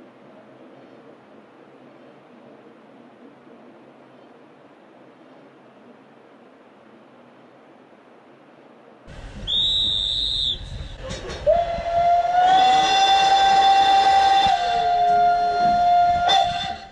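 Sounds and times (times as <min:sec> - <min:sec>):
locomotive whistle long note: 0:09.3 - 0:16.9
short shrill whistle: 0:09.4 - 0:10.9.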